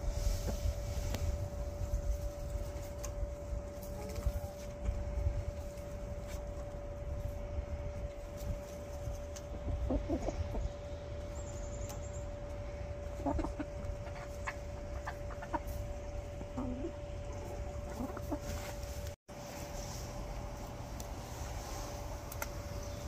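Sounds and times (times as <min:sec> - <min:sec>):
steady hum: 0:00.0 - 0:23.0
hens clucking softly: 0:08.9 - 0:19.0.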